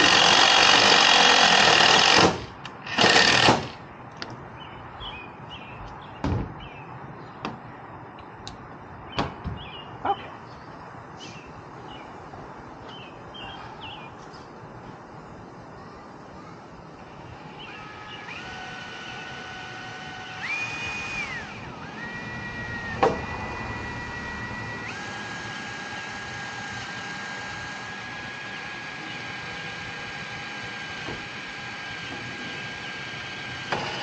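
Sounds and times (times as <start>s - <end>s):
power drill whining: 0.0s - 3.8s, 17.4s - 34.0s.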